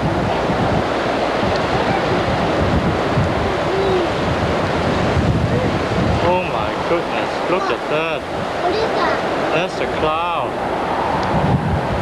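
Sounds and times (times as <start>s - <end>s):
strong wind on microphone: 0.0s - 12.0s
faint voice: 1.6s - 2.5s, 3.3s - 4.3s, 5.4s - 10.5s.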